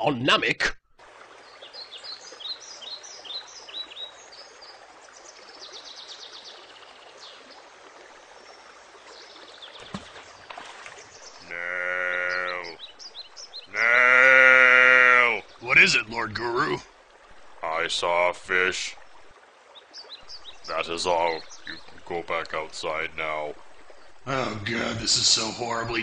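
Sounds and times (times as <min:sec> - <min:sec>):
faint bird chirping and trills: 0:01.2 - 0:26.0
old man calling out: 0:11.4 - 0:12.8, 0:13.7 - 0:16.8.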